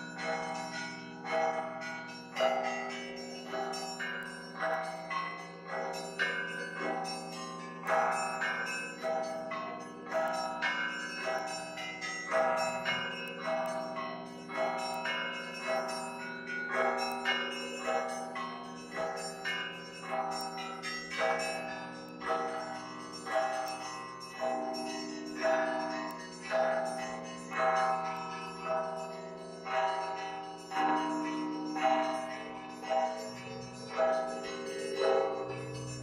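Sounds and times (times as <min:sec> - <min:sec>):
hum of large bells: 0:00.0 - 0:36.0
small bells pealing rhythmically: 0:00.0 - 0:36.0.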